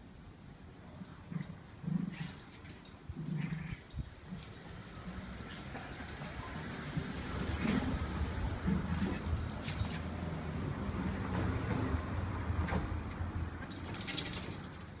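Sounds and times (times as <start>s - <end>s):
dog growling low: 1.2s - 6.4s, 7.2s - 10.0s
jingle and clicks: 13.7s - 15.0s.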